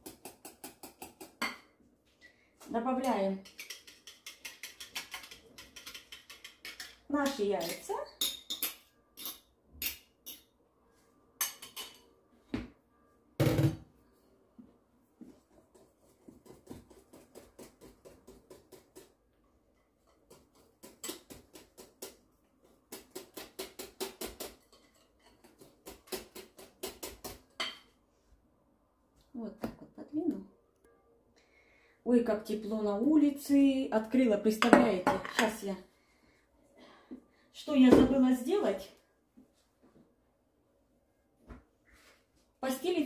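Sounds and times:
whisk ticking against glass bowl: 0:03.4 - 0:07.0.

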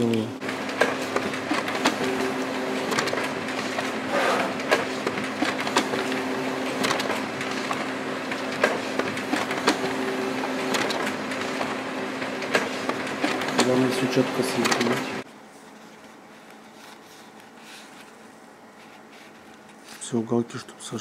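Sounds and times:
steady hum: 0:00.0 - 0:21.0
paper crackling and rustling: 0:15.5 - 0:20.2.

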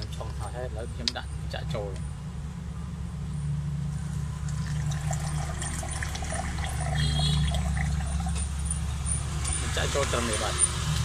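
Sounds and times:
tea trickling into a cup: 0:04.2 - 0:08.6.

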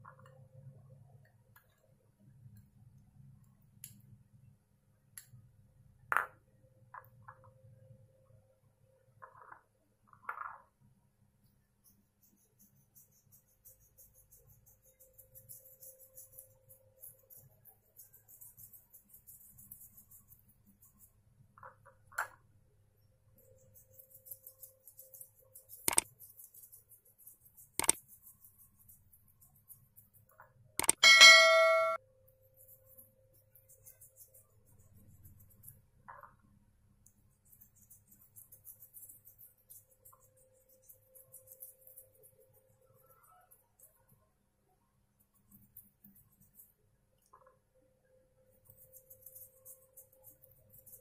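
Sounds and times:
toothbrush scraping: 0:11.8 - 0:21.9, 0:23.4 - 0:31.0, 0:32.4 - 0:36.2, 0:37.2 - 0:44.2, 0:45.3 - 0:46.8, 0:48.5 - 0:51.0
toothbrush clicking on glass bowl: 0:23.6 - 0:32.0, 0:48.6 - 0:51.0
mouse clicks: 0:25.9 - 0:26.1, 0:27.8 - 0:28.0, 0:30.8 - 0:31.2.

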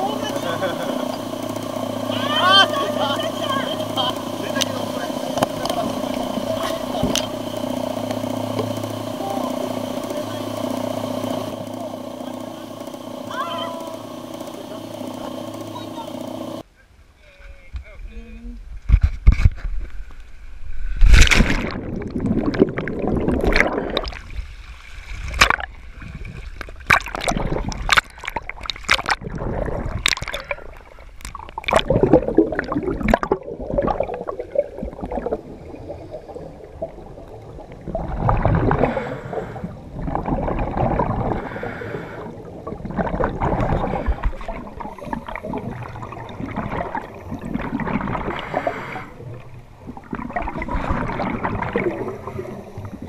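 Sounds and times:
muffled underwater sound: 0:00.0 - 0:16.6, 0:21.5 - 0:24.3, 0:27.0 - 0:53.0
regulator bubbles gurgling: 0:00.0 - 0:16.6, 0:21.0 - 0:53.0
underwater clicks and knocks: 0:04.6 - 0:07.4.

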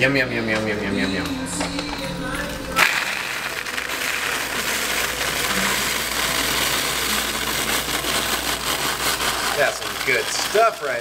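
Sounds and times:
paper bag crinkling: 0:01.3 - 0:11.0
grains pouring into paper bag: 0:02.7 - 0:11.0.

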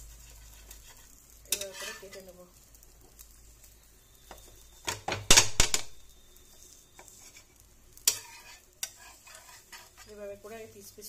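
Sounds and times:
metal spatula clinking on frying pan: 0:08.0 - 0:10.0.

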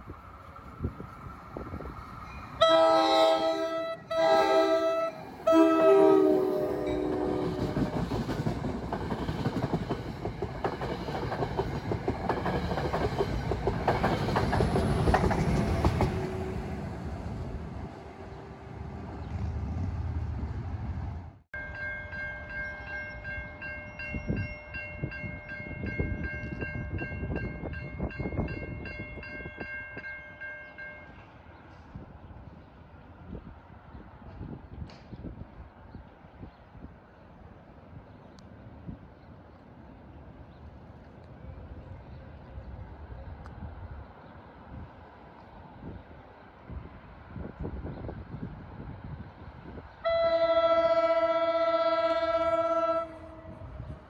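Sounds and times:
train air horn blasts: 0:02.6 - 0:07.8, 0:50.0 - 0:54.0
train wheels rolling: 0:04.1 - 0:21.4.

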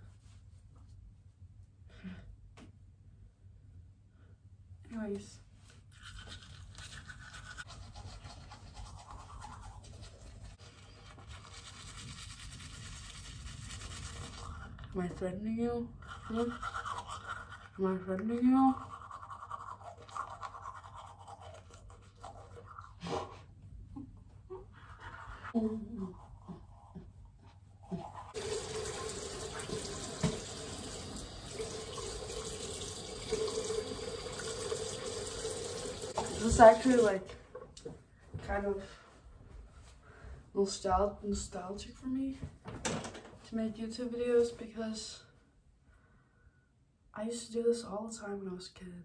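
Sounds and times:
toothbrush scrubbing teeth: 0:05.8 - 0:15.0, 0:15.9 - 0:23.5, 0:24.6 - 0:30.9
tap running into sink: 0:28.4 - 0:36.6.

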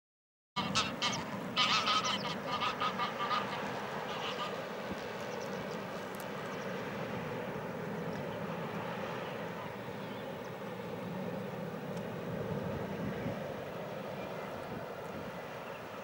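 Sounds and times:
waterfowl calls: 0:00.6 - 0:05.9.

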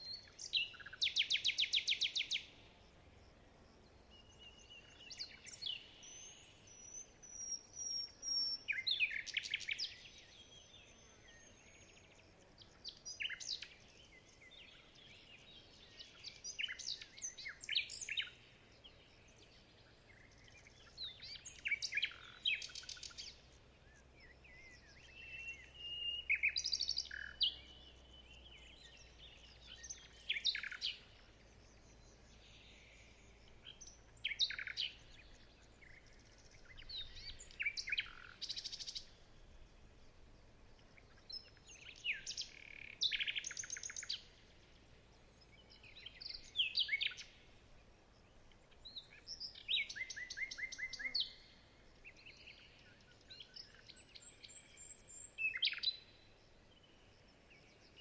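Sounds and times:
songbirds chirping: 0:00.0 - 0:58.0
thin drawn-out bird whistles: 0:24.6 - 0:27.6, 0:33.7 - 0:35.0, 0:41.8 - 0:44.2, 0:48.9 - 0:51.4.

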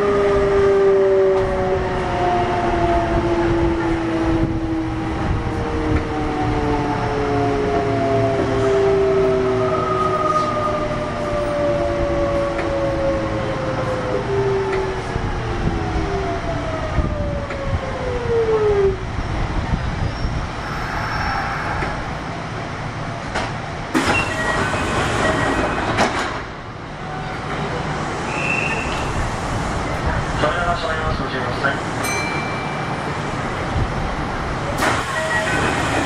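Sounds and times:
wheel and track rumble: 0:10.1 - 0:36.0.

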